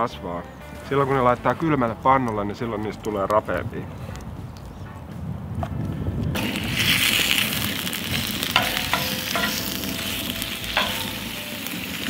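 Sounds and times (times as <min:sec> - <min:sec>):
bacon sizzling in frying pan: 0:06.4 - 0:12.0
knife clinking on pan: 0:08.6 - 0:09.9, 0:10.8 - 0:11.2.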